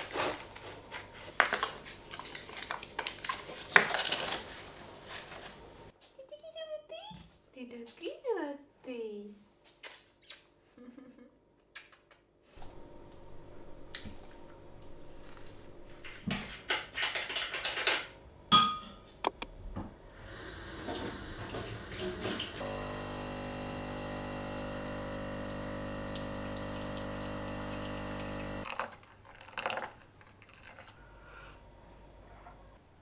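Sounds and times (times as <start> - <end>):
espresso machine pump humming: 20.2 - 28.8.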